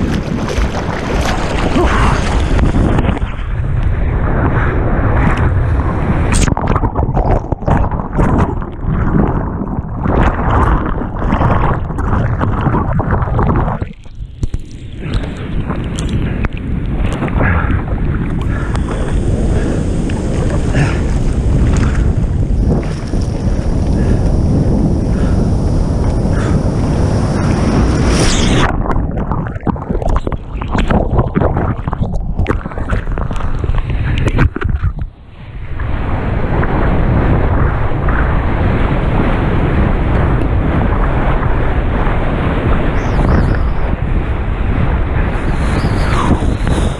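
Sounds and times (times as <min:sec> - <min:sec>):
muffled underwater churning: 0:00.0 - 0:46.9
wind on microphone: 0:00.0 - 0:46.9
bubbles popping and gurgling: 0:06.3 - 0:16.1, 0:28.6 - 0:35.1
breaking wave rushing: 0:18.5 - 0:28.9.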